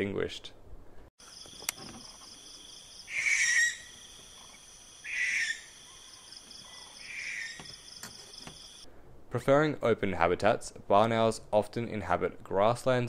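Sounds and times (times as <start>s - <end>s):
insects trilling: 1.2s - 8.8s
owl hissing screeches: 3.1s - 4.0s, 5.0s - 5.8s, 7.0s - 7.6s.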